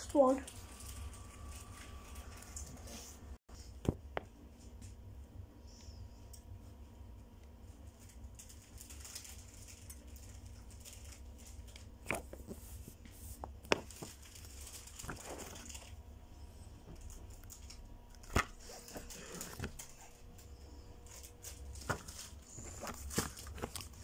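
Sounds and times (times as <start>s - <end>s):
paper leaflets rustling: 8.0s - 16.0s, 21.0s - 24.0s.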